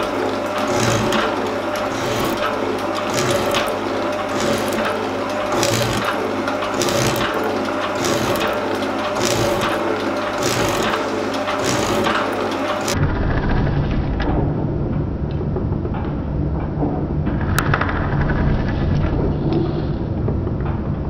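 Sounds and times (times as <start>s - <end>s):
metal cutting noise: 0.0s - 13.0s
machine hum: 0.0s - 13.4s.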